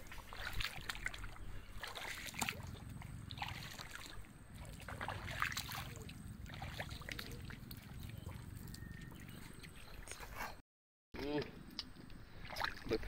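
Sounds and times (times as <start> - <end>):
bare feet squelching in mud: 0.0 - 10.6
small wet clicks and pops: 7.0 - 10.2.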